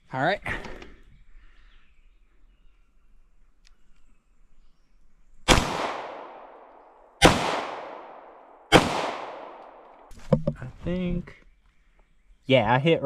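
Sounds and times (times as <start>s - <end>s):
pistol shots with echo: 5.5s - 10.0s.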